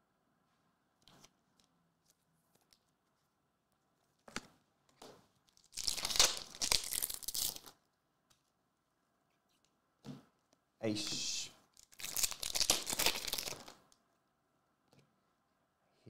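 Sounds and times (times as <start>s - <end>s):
wrapper rustling: 5.5s - 7.8s, 11.8s - 13.8s
wrapper tearing and crinkling: 5.5s - 7.8s, 11.7s - 13.8s.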